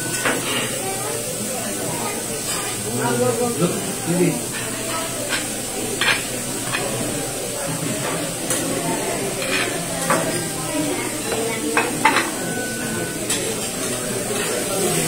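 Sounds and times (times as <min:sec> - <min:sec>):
food sizzling on a griddle: 0:00.0 - 0:15.0
low voices: 0:00.0 - 0:15.0
metal utensils clinking and scraping: 0:04.5 - 0:07.2, 0:07.9 - 0:15.0.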